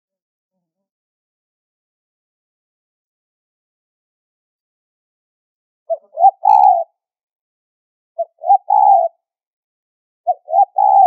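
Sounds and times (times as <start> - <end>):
dove cooing: 5.9 - 7.0, 8.2 - 9.2, 10.3 - 11.0.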